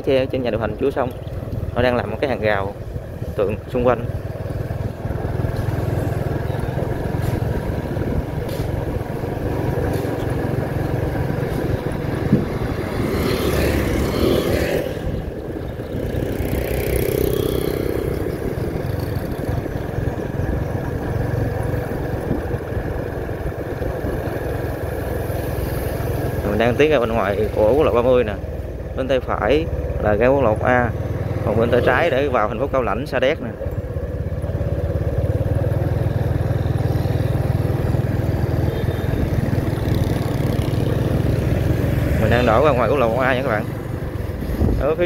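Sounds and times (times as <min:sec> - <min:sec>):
motorbike engine running: 0:00.3 - 0:45.0
wind noise on microphone: 0:07.2 - 0:09.4, 0:11.4 - 0:13.2, 0:21.9 - 0:24.4, 0:44.2 - 0:45.0.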